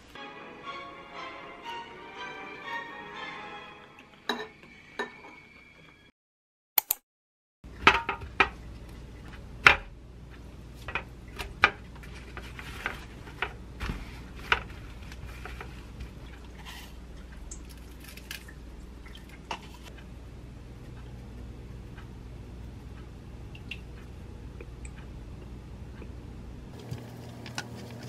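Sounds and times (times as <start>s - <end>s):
paper rustling: 12.0s - 17.0s.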